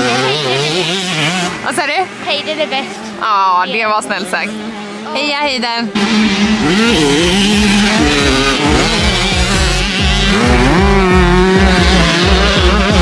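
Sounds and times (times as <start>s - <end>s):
music with a steady beat: 7.6s - 13.0s.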